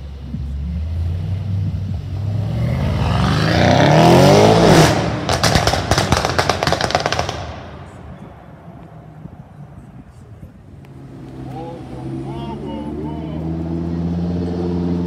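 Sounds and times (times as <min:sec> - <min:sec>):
car engine accelerating hard: 0:00.0 - 0:07.2, 0:10.8 - 0:15.0
exhaust pops and crackles: 0:00.1 - 0:11.6.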